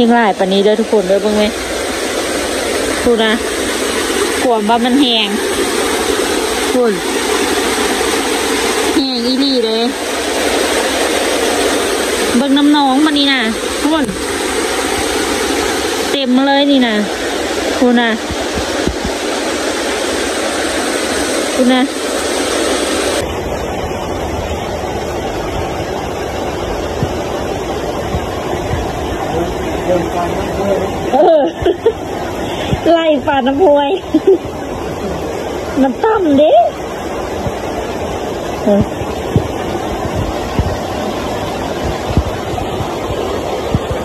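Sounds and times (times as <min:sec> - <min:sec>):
flowing floodwater: 0:00.0 - 0:44.0
heavy rain: 0:00.0 - 0:44.0
low thumps: 0:18.0 - 0:19.4, 0:28.0 - 0:29.1, 0:38.6 - 0:44.0.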